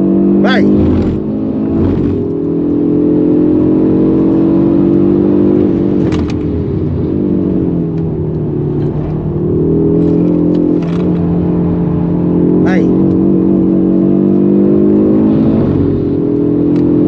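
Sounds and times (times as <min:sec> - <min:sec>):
car engine running hard: 0:00.0 - 0:17.0
exhaust crack: 0:05.7 - 0:11.4.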